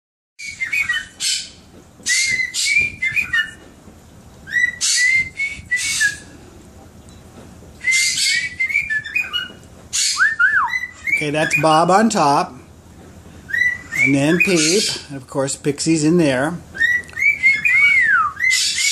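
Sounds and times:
cockatiels calling: 0:00.4 - 0:03.7, 0:04.5 - 0:06.2, 0:07.8 - 0:12.1, 0:13.5 - 0:15.2, 0:16.7 - 0:18.9.

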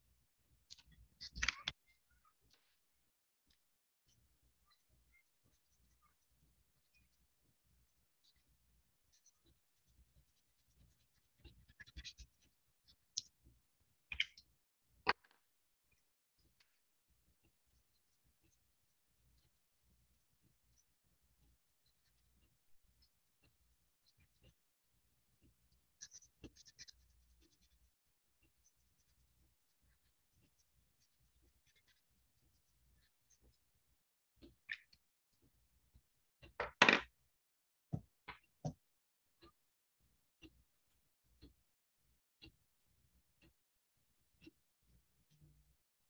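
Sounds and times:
felt-tip marker scratching paper: 0:08.2 - 0:13.0, 0:25.4 - 0:33.6.

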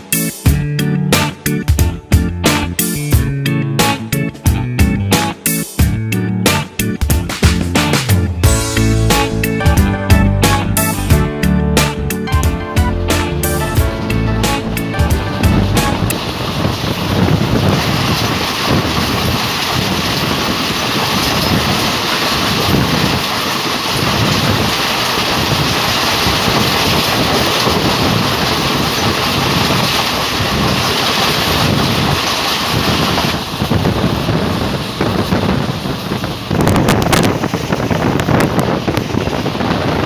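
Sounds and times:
train wheel rumble: 0:00.0 - 0:40.0
passing train hiss: 0:13.5 - 0:40.0
wind buffeting microphone: 0:13.7 - 0:40.0.

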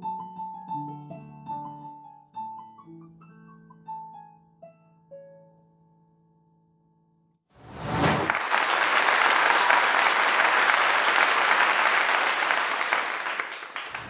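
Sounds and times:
crowd applause: 0:08.2 - 0:14.0.

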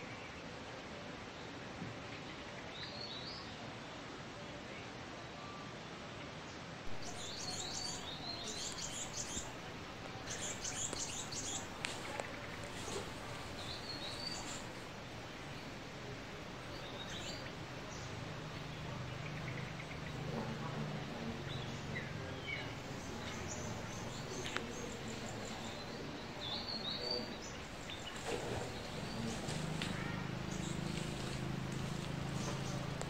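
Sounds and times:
steady hiss: 0:06.8 - 0:33.0
bird chirps: 0:06.9 - 0:15.8
faint low hum: 0:06.9 - 0:33.0.

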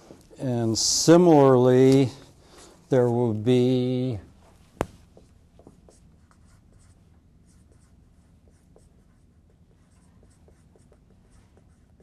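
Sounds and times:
marker scratching on whiteboard: 0:05.0 - 0:12.0.

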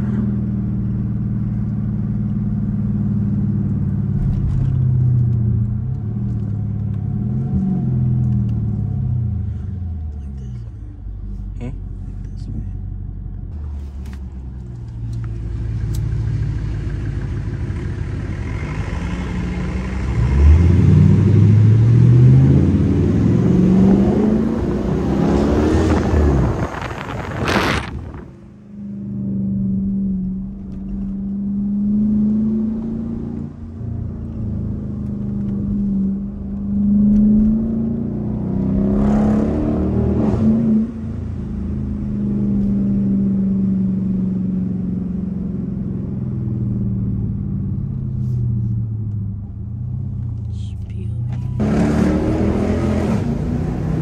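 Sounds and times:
exhaust drone while cruising: 0:00.0 - 0:54.0
car engine accelerating hard: 0:13.6 - 0:54.0.

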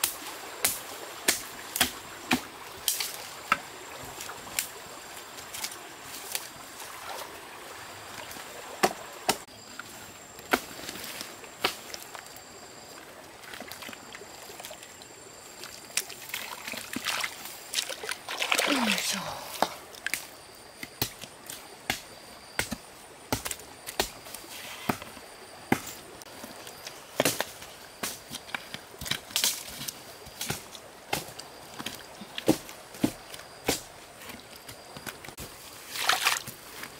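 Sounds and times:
hoe chopping into mud: 0:00.0 - 0:03.6, 0:08.8 - 0:09.5, 0:21.9 - 0:26.0, 0:30.4 - 0:33.9
water slopping and splashing: 0:15.6 - 0:20.2, 0:35.0 - 0:36.9.

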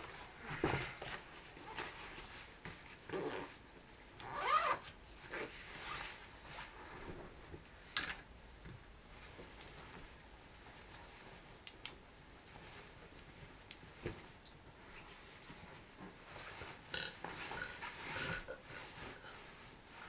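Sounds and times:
fabric and nylon rustling: 0:00.0 - 0:07.6, 0:12.3 - 0:20.0
zipper being drawn: 0:04.2 - 0:06.0.

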